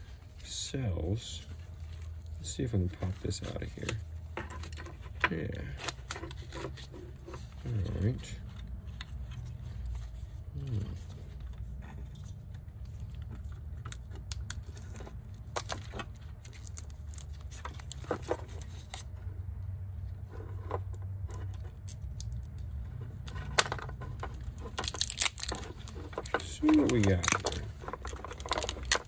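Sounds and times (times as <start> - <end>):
plastic battery case clicks and rustles: 20.7 - 29.0.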